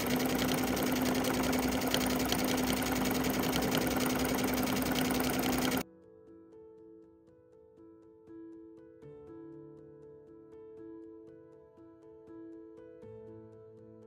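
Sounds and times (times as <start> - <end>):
sewing machine stitching: 0.0 - 5.8.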